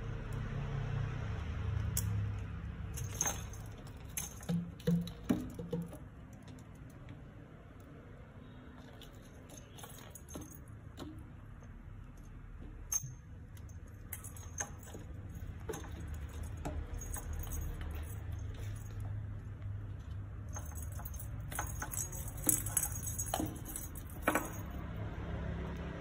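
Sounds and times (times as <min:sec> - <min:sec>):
high jingling: 0:02.9 - 0:06.0, 0:08.8 - 0:11.3, 0:12.8 - 0:19.4, 0:20.4 - 0:25.0.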